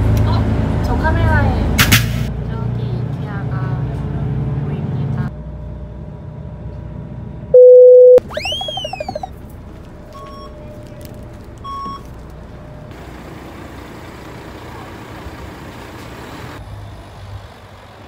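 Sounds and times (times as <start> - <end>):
bus engine rumble: 0.0 - 7.5, 8.2 - 18.0
low engine hum: 0.0 - 18.0
short electronic beeps: 7.6 - 9.3.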